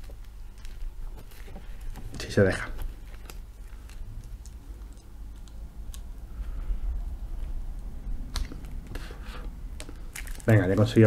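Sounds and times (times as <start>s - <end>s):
fingers crinkling card wrapping: 0.0s - 6.6s, 9.8s - 11.0s.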